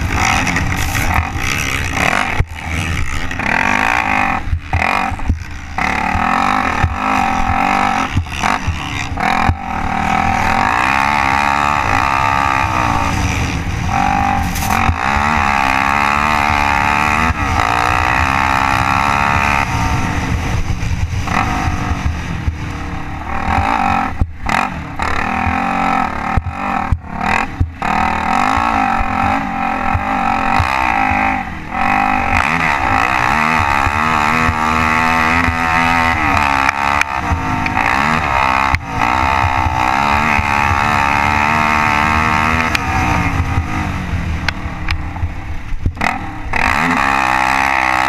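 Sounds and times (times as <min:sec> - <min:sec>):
atv engine revving: 0:00.0 - 0:48.0.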